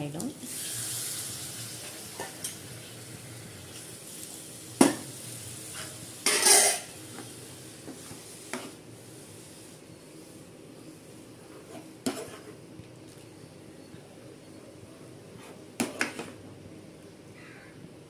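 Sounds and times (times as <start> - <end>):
curry sizzling faintly: 0.0 - 17.2
ladle knocking and scraping pan: 5.8 - 6.9.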